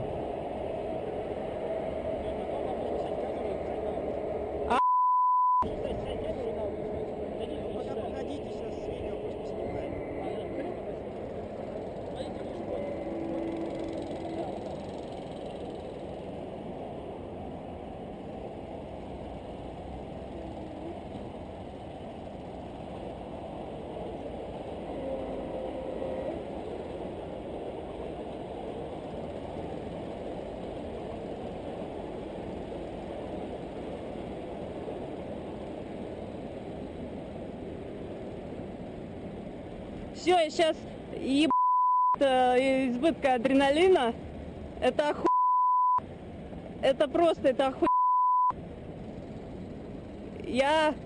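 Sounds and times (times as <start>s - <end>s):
wind rumbling on microphone: 0.0s - 4.7s.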